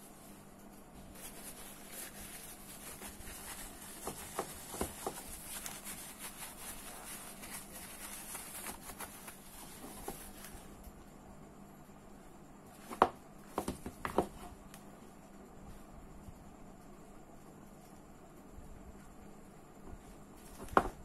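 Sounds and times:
light rubbing of reel parts: 0.0s - 10.8s.

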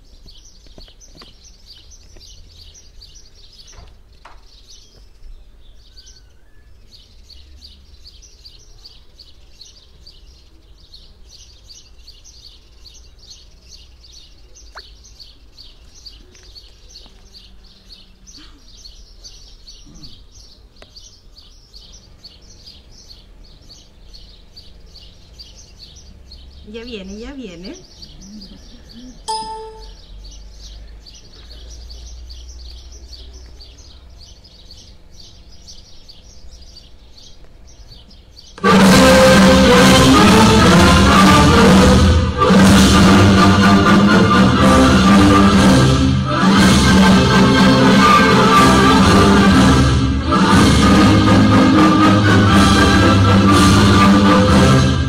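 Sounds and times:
small bird chirping: 0.0s - 38.6s.

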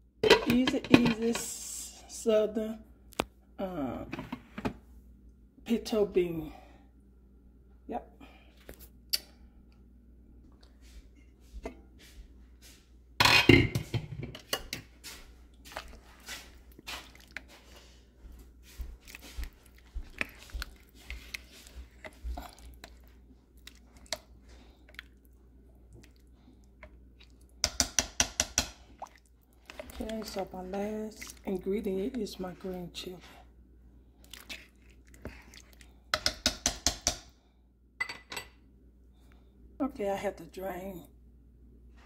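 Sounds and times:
spoon stirring beans: 0.2s - 1.9s, 13.8s - 33.4s, 34.2s - 37.3s
cooking beans wet clicks: 19.0s - 31.9s, 34.2s - 37.3s.

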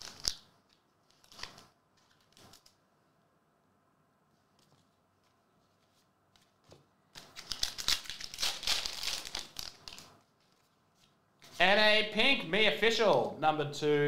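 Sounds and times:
foil wrapper tearing and crinkling: 0.0s - 2.7s, 7.2s - 10.6s.

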